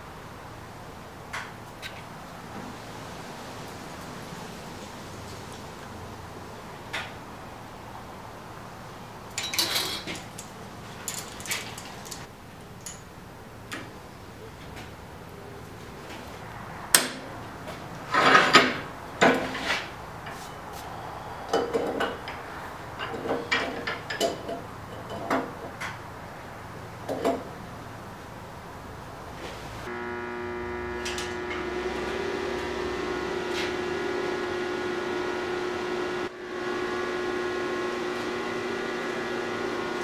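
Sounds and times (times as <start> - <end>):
metal tools clinking and rattling: 9.4 - 13.1.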